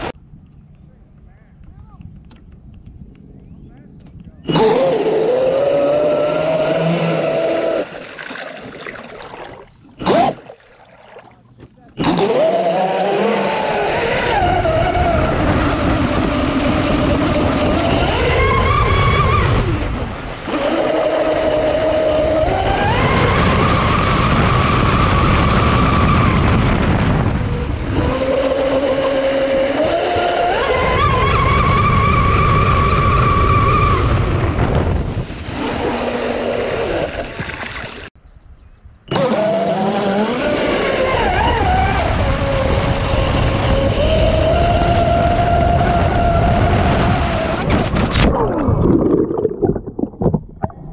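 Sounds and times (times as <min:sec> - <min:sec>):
electric motor whining: 0:04.5 - 0:08.0, 0:12.0 - 0:19.9
water rushing along hull: 0:04.5 - 0:38.2, 0:39.1 - 0:50.9.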